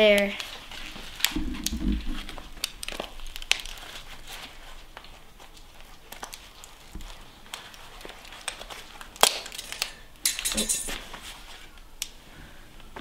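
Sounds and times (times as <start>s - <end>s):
phone parts cracking and crinkling: 8.3s - 11.0s.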